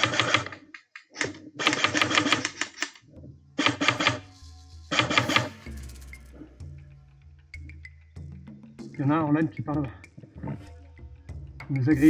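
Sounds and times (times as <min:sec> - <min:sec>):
airsoft guns firing bursts: 0:00.0 - 0:00.6, 0:01.6 - 0:02.9, 0:03.6 - 0:04.2.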